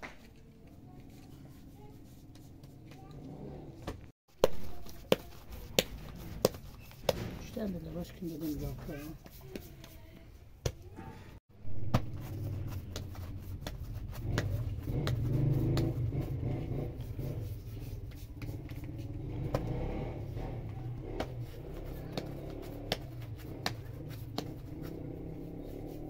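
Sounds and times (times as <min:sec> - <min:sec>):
hands patting bread dough: 0:03.9 - 0:10.9, 0:11.8 - 0:19.9, 0:20.6 - 0:26.0.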